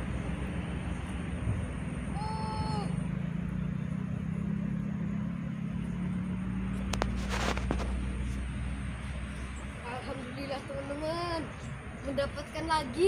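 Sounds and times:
low motor drone: 0.0s - 12.2s
brief rustling: 6.8s - 8.4s.

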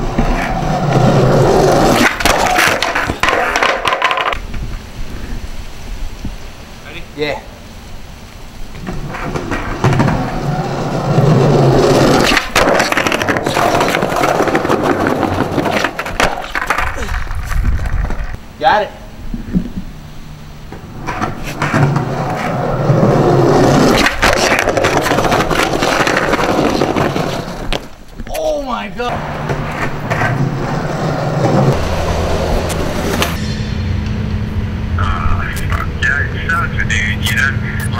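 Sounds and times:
skateboard clacks: 0.0s - 4.4s, 8.8s - 18.4s, 21.0s - 28.5s
skateboard wheels rolling on tiles: 0.0s - 4.8s, 8.7s - 18.4s, 20.7s - 28.5s, 29.1s - 33.4s.

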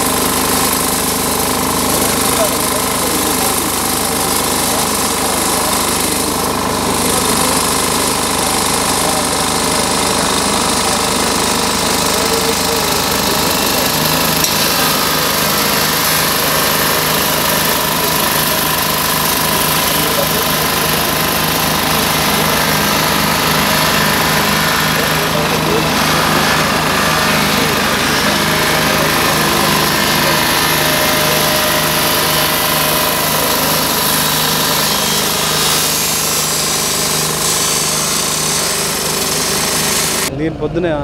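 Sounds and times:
engine droning: 0.0s - 41.0s
people talking: 1.8s - 36.5s, 40.3s - 41.0s.

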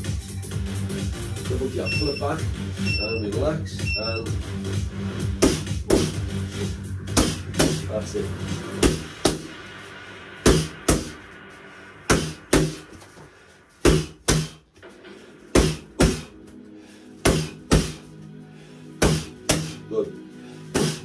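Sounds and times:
boxing gloves hitting focus mitts: 5.4s - 6.2s, 7.1s - 7.9s, 12.1s - 13.2s, 13.8s - 14.6s, 15.5s - 16.6s, 17.2s - 18.0s, 19.0s - 19.8s, 20.7s - 21.0s.

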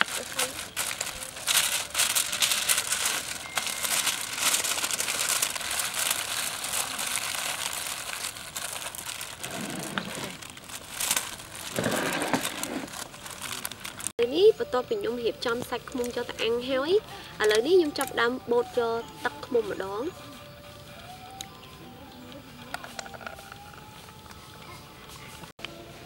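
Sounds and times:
plastic bag crinkling: 0.0s - 14.1s.

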